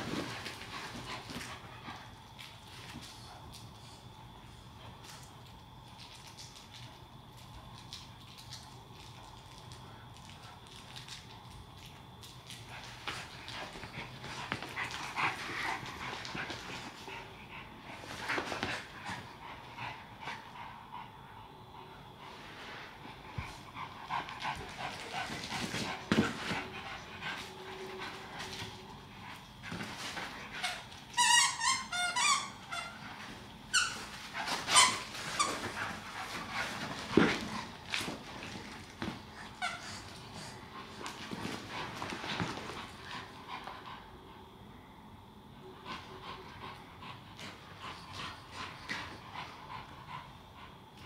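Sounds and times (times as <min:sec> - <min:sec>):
dogs scuffling: 0:00.0 - 0:03.2, 0:12.6 - 0:17.1, 0:23.4 - 0:31.7, 0:33.0 - 0:43.2
dogs panting: 0:12.5 - 0:30.9.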